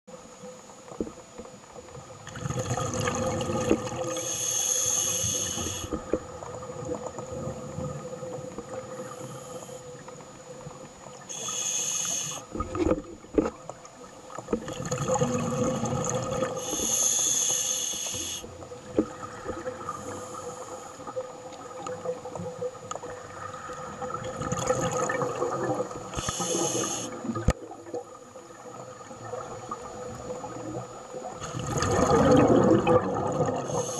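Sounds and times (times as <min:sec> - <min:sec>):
faint steady hum: 0:00.1 - 0:33.9
exhaled bubbles rushing: 0:02.2 - 0:04.2, 0:14.5 - 0:16.6, 0:21.8 - 0:33.9
hissing regulator inhale: 0:04.0 - 0:06.2, 0:09.0 - 0:10.1, 0:11.3 - 0:12.6, 0:16.5 - 0:18.6, 0:19.8 - 0:21.2, 0:26.1 - 0:27.3, 0:33.6 - 0:33.9.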